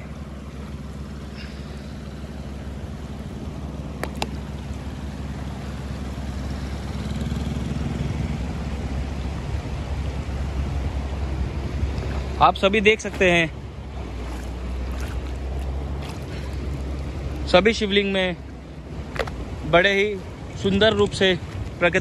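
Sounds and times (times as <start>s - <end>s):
boat motor droning: 0.0s - 22.0s
water rushing over stones: 9.8s - 22.0s.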